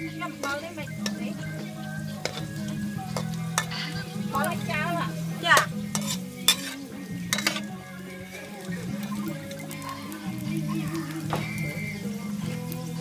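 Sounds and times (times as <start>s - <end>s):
sizzling oil hiss: 0.0s - 13.0s
metal spatula scraping a wok: 0.2s - 9.2s.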